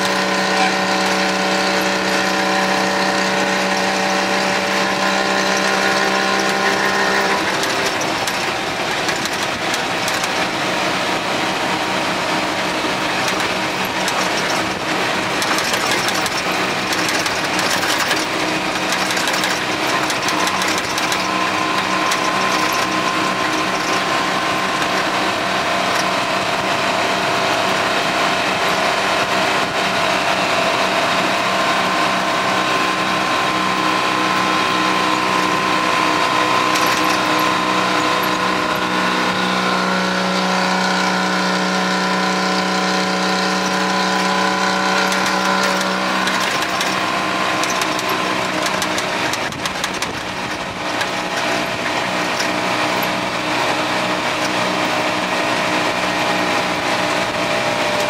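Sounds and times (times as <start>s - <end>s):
truck engine running: 0.0s - 58.0s
clicks and rattles: 5.5s - 10.5s, 13.2s - 25.2s, 36.6s - 38.9s, 44.6s - 53.2s.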